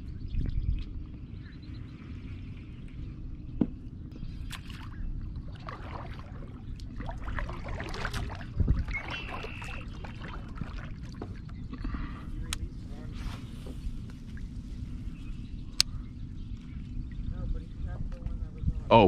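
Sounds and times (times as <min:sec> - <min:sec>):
low rumble: 0:00.0 - 0:19.0
water splashing and trickling: 0:04.1 - 0:18.6
paddle strokes in water: 0:04.2 - 0:15.1.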